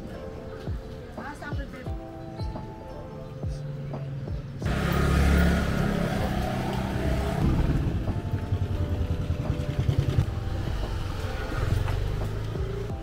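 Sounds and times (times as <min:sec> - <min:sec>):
steady street hum: 0:00.0 - 0:13.0
motorcycle engines passing: 0:03.8 - 0:13.0.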